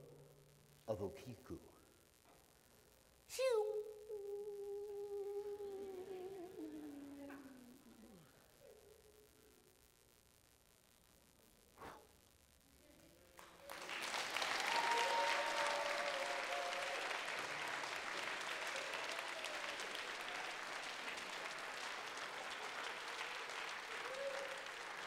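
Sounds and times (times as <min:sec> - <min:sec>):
audience applauding: 0:13.4 - 0:25.0
voices whooping and cheering: 0:13.7 - 0:25.0.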